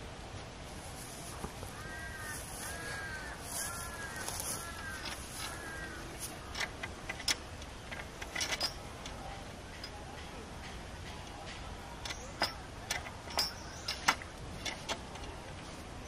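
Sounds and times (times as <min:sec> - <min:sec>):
steady outdoor hiss: 0:00.0 - 0:16.0
crow cawing: 0:01.7 - 0:06.6.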